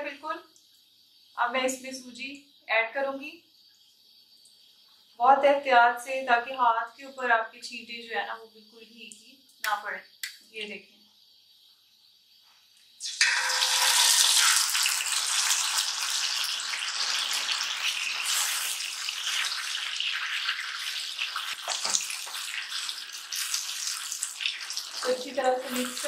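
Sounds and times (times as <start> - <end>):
loud hissing sizzle: 0.0 - 10.5, 11.2 - 26.0
spatula stirring: 13.0 - 26.0.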